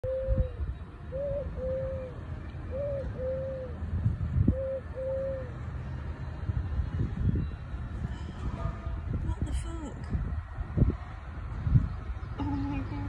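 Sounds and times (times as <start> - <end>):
dove cooing: 0.0 - 3.8, 4.5 - 5.5.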